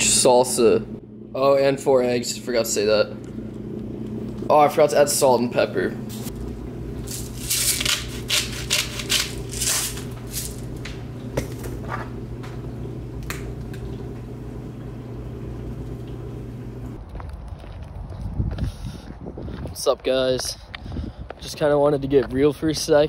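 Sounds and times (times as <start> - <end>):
kitchen appliance hum: 0.0 - 17.0.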